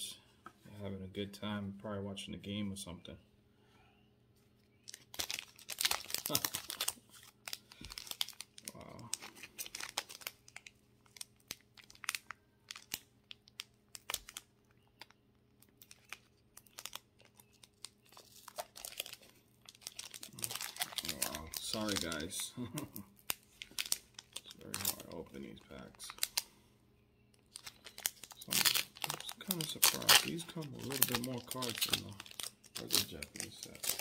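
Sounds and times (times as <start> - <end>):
foil wrapper crinkling and tearing: 4.8 - 26.5, 27.4 - 34.0.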